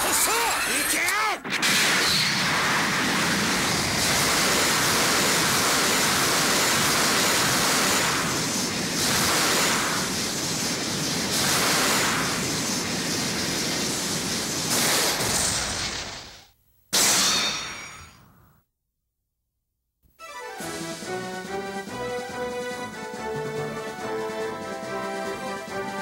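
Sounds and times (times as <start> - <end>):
pachinko machine rushing roar: 20.2 - 26.0.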